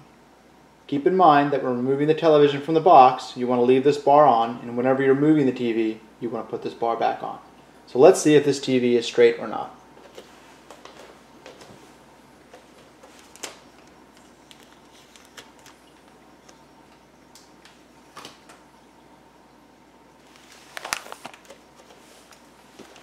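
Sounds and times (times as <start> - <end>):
packaging rustles and taps: 20.7 - 23.0.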